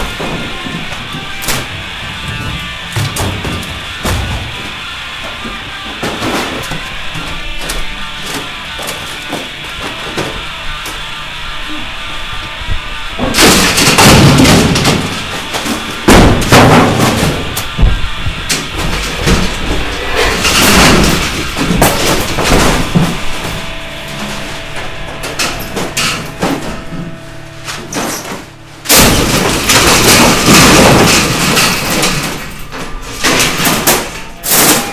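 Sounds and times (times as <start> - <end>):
heavy crashes and thuds: 0.0 - 7.2, 13.2 - 34.8
music: 0.0 - 26.6.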